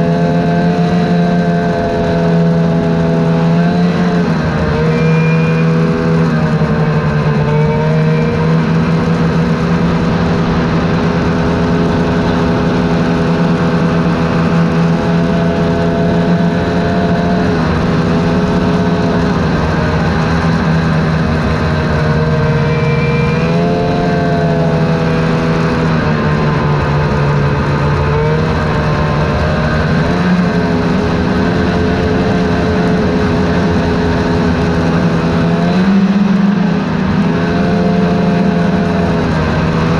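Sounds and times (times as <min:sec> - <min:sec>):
constant rushing noise: 0:00.0 - 0:39.9
snowmobile engine running: 0:00.0 - 0:39.9.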